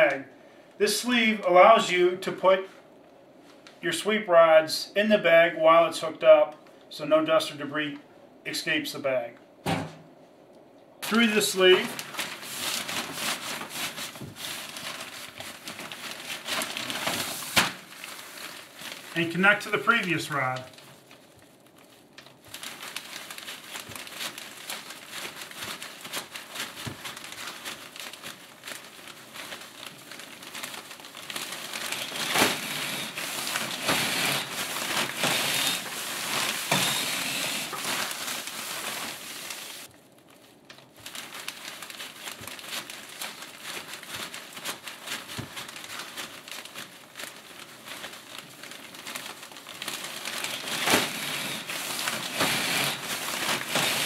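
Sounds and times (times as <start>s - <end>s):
plastic bag crinkling: 11.0s - 54.0s.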